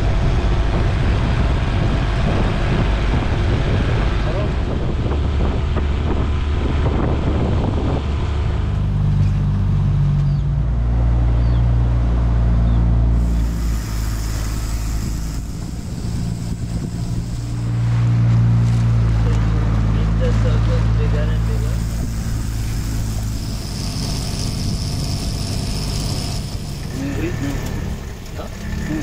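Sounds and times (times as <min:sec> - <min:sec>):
outboard motor running: 0:00.0 - 0:10.0, 0:12.4 - 0:29.0
wind: 0:00.0 - 0:29.0
water noise: 0:13.1 - 0:29.0.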